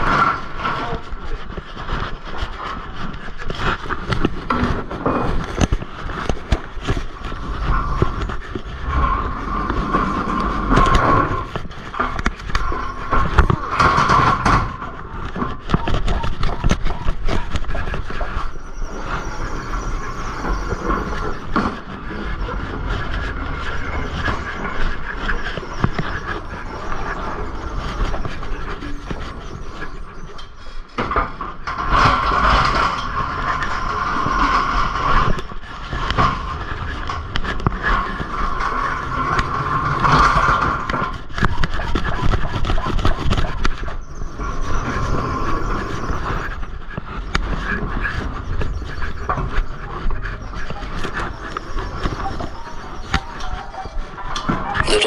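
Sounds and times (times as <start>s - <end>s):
high squeal of dragged wheels: 15.8s - 30.8s.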